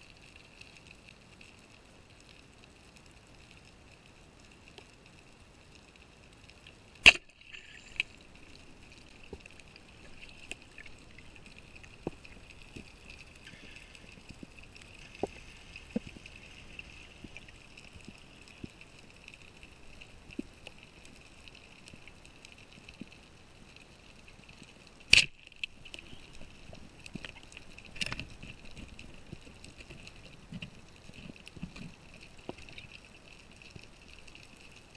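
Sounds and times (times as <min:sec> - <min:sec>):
faint underwater hiss: 0:00.0 - 0:34.9.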